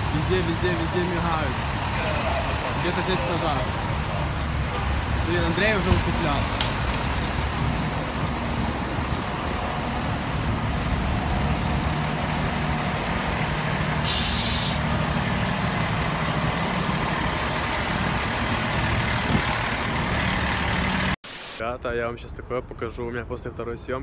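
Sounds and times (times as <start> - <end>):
diesel engines idling: 0.0 - 21.2
air brakes hissing: 14.0 - 14.9.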